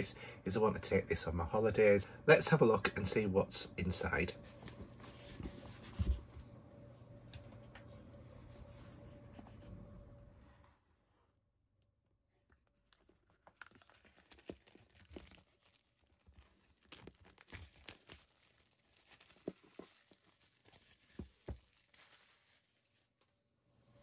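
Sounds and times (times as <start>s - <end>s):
plastic wrap crinkling and tearing: 12.5s - 23.3s.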